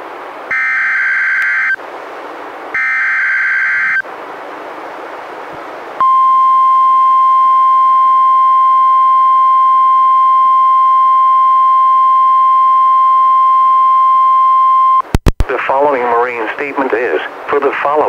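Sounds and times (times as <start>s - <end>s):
steady alarm tone: 0.5s - 1.8s, 2.8s - 4.0s.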